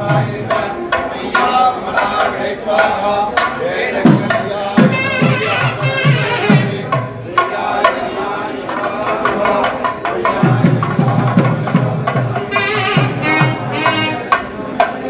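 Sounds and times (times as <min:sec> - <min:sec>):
sharp higher drum strokes: 0:10.5 - 0:14.6
held melodic line: 0:12.6 - 0:14.5.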